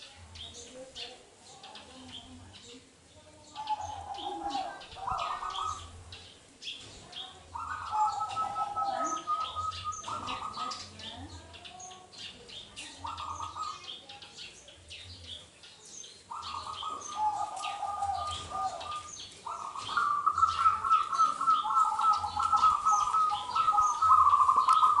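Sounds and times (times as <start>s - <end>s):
small birds chirping: 0.0s - 25.0s
dove cooing in trilling phrases: 3.6s - 6.1s, 7.4s - 11.1s, 12.9s - 14.1s, 16.3s - 25.0s.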